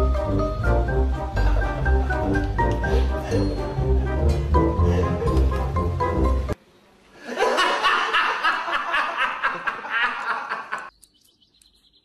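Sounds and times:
man laughing: 0:07.2 - 0:10.9.

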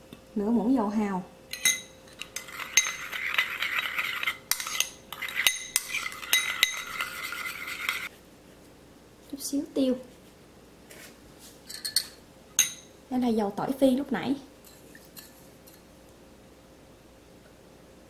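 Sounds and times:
spoon stirring sauce in bowl: 0:01.5 - 0:08.1.

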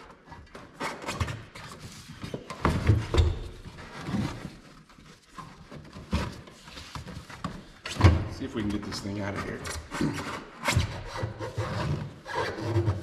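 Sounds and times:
rubber scraping on carpet: 0:09.4 - 0:13.0.

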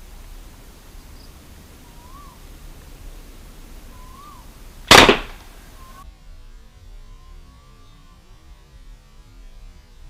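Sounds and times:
toy gun shot: 0:04.9 - 0:05.5.

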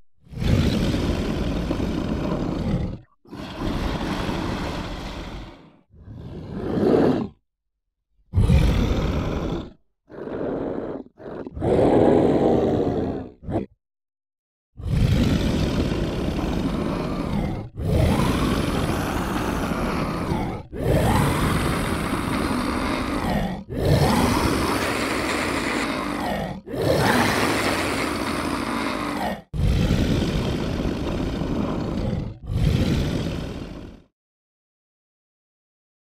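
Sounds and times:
monster roars: 0:00.3 - 0:07.4, 0:08.3 - 0:13.7, 0:14.8 - 0:34.1.

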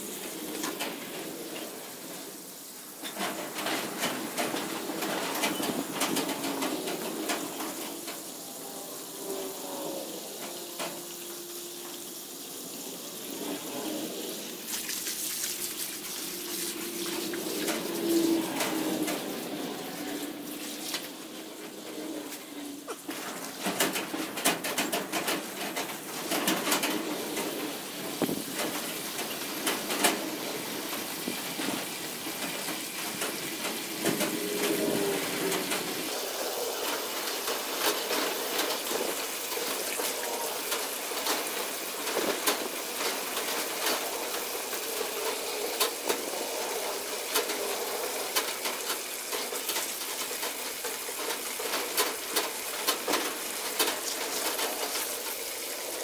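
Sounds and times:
hose water spraying and splashing: 0:00.0 - 0:56.0
small splashes and drips: 0:10.4 - 0:21.2.

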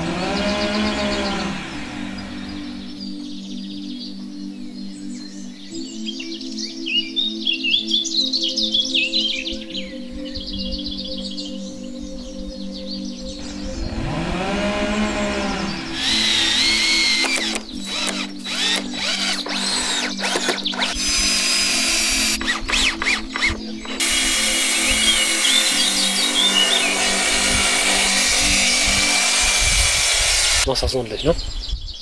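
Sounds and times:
cordless drill whining: 0:00.0 - 0:02.9, 0:13.8 - 0:30.7
background music with chords: 0:00.0 - 0:31.3.

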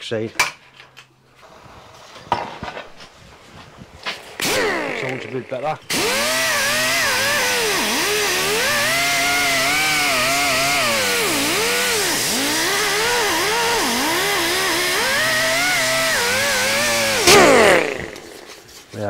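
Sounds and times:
pneumatic die grinder whining: 0:04.3 - 0:18.9.

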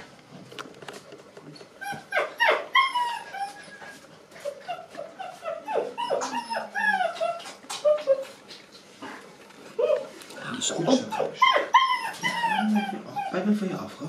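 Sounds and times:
puppy whining and yipping: 0:01.8 - 0:08.5, 0:09.8 - 0:10.1, 0:10.9 - 0:13.4.

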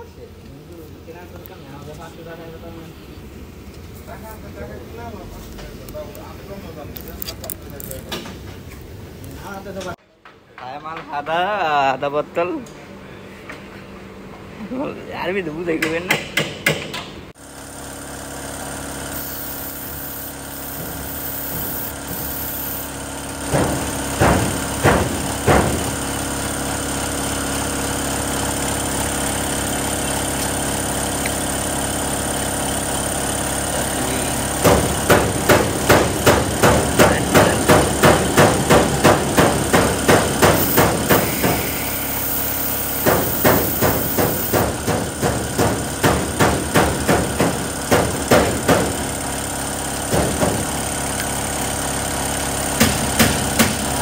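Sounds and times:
steady mechanical hum: 0:00.0 - 0:54.0
toothbrush scrubbing metal bore: 0:19.1 - 0:22.9.

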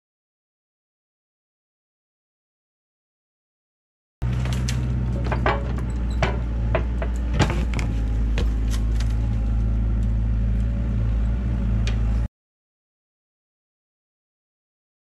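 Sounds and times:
diesel engine running: 0:04.2 - 0:12.3.

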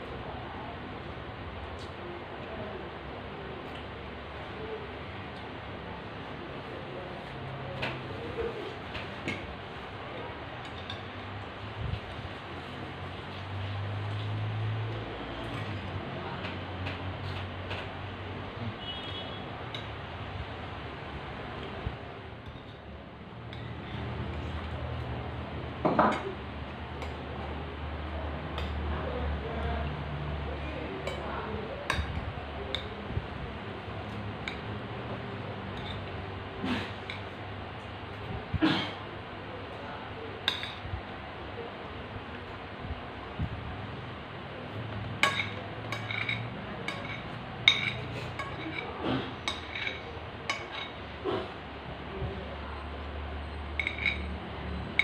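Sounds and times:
cutlery clinking on plates: 0:35.7 - 0:36.1, 0:45.2 - 0:51.5, 0:53.7 - 0:54.3
cutlery clatter: 0:45.2 - 0:51.0, 0:53.8 - 0:54.3.

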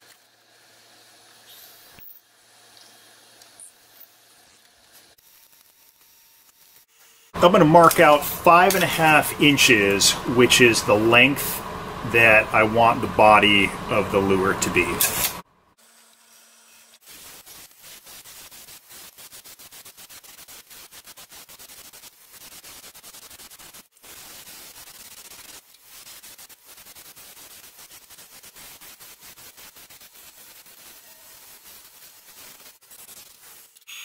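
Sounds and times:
wood lathe tool scraping wood: 0:07.0 - 0:15.4.

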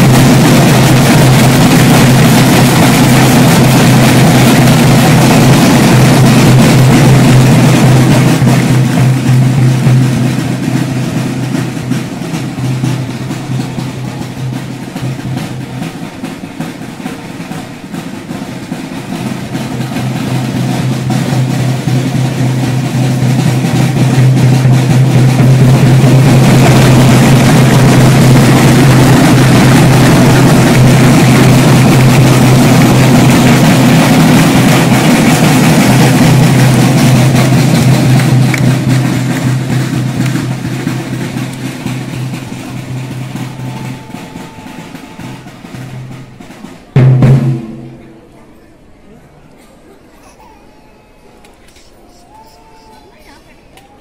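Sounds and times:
marching snare drums: 0:00.0 - 0:48.4.

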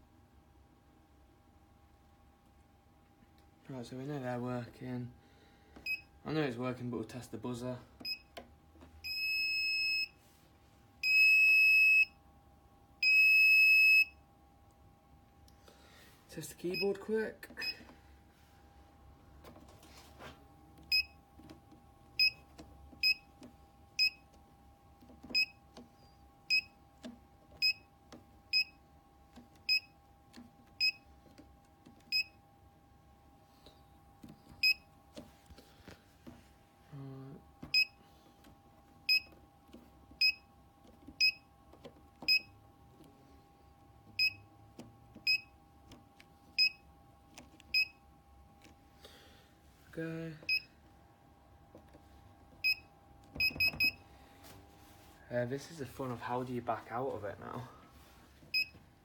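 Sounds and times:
keypad beeping: 0:11.0 - 0:12.2, 0:20.8 - 0:24.4, 0:25.0 - 0:32.4, 0:34.2 - 0:35.3, 0:37.6 - 0:38.0, 0:39.0 - 0:42.6, 0:44.0 - 0:48.0, 0:50.5 - 0:50.7, 0:52.6 - 0:54.0, 0:58.5 - 0:58.8.

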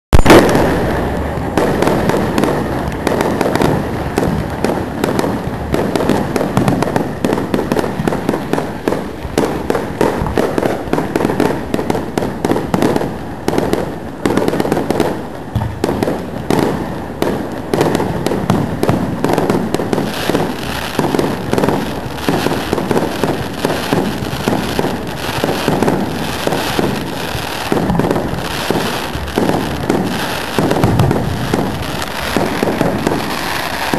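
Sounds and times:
loud bang: 0:00.1 - 0:03.9
fireworks shell bursts: 0:00.2 - 0:03.8.

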